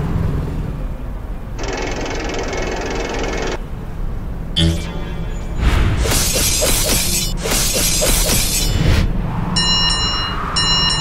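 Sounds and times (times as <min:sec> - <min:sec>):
background music: 0:04.6 - 0:06.5
cartoon shattering crashes: 0:04.6 - 0:08.9
pulsing ringing tones: 0:04.6 - 0:08.9, 0:09.6 - 0:11.0.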